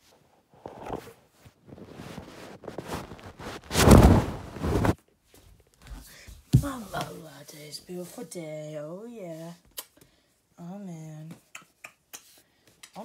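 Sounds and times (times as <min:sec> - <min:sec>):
phone rubbing against bedding: 0:01.7 - 0:05.0.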